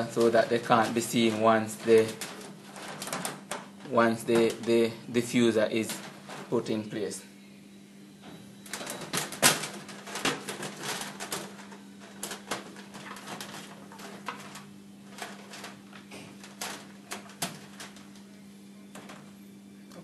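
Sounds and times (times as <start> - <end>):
wires clicking on sheet metal: 0.0 - 4.8, 8.7 - 18.3
steady low hum: 0.0 - 20.0.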